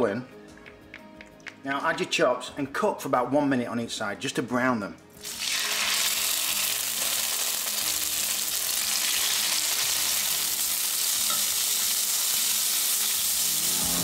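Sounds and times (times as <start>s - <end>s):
meat sizzling in frying pan: 5.2s - 14.0s.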